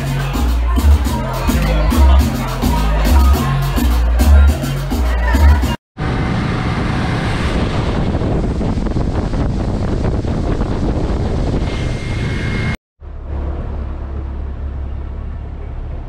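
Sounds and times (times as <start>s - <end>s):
wind buffeting microphone: 6.0s - 12.8s.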